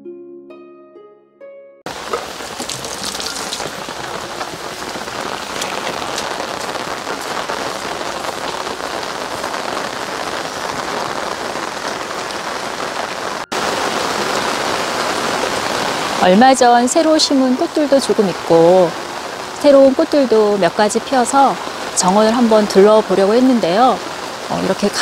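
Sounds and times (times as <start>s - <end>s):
heavy rain on plants: 1.9s - 25.0s.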